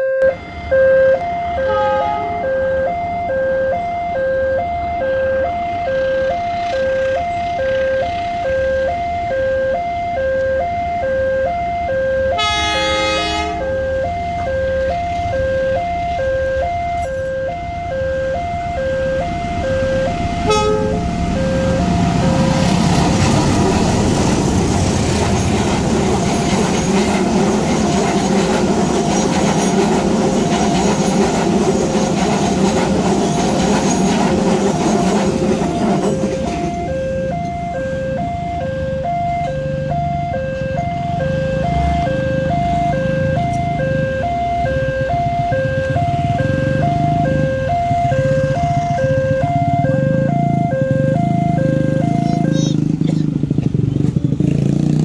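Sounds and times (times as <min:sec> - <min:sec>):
level crossing two-tone alarm: 0:00.0 - 0:24.5, 0:26.1 - 0:52.7
locomotive horn: 0:00.0 - 0:25.4
train passing: 0:00.2 - 0:55.0.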